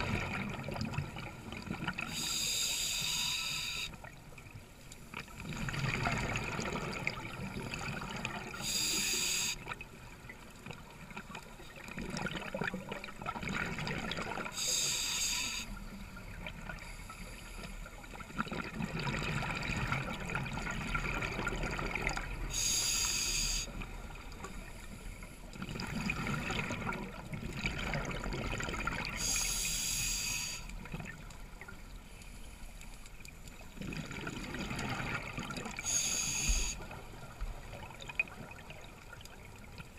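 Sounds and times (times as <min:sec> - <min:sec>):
exhaled bubbles rumbling: 0:00.0 - 0:02.0, 0:05.4 - 0:08.5, 0:11.8 - 0:14.5, 0:18.2 - 0:22.5, 0:25.6 - 0:29.2, 0:33.8 - 0:35.8
regulator inhalation hiss: 0:02.1 - 0:04.0, 0:08.6 - 0:09.6, 0:14.6 - 0:15.8, 0:22.5 - 0:23.7, 0:29.2 - 0:30.7, 0:35.8 - 0:36.8.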